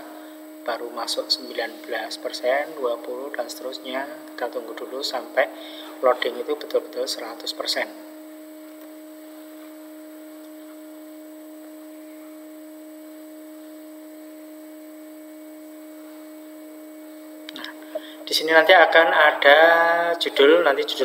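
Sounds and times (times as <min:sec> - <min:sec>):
steady two-tone hum: 0:00.0 - 0:21.0.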